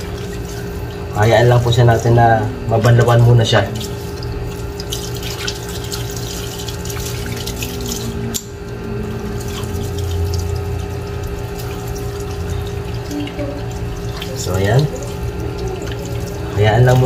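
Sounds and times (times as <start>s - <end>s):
steady low hum: 0.0s - 17.0s
tap water splashing into sink: 2.8s - 8.5s, 9.4s - 17.0s.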